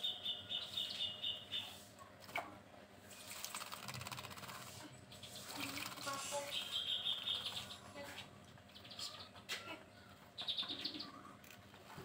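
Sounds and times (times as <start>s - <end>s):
high bird chirping: 0.0s - 1.8s, 5.1s - 9.4s, 10.4s - 11.2s.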